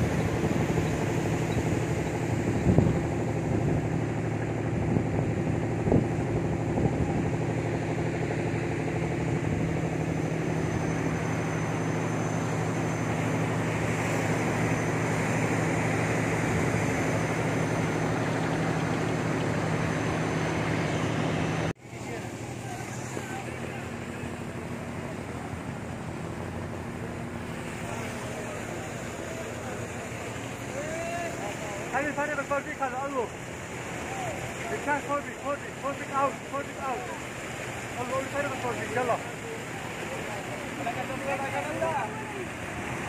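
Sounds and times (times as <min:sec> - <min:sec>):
wind noise on microphone: 0:00.0 - 0:07.7
ship engine humming: 0:00.0 - 0:43.0.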